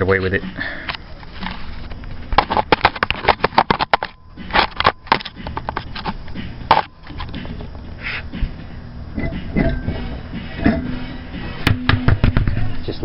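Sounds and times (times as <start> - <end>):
camera handled and set on concrete: 1.4 - 7.4.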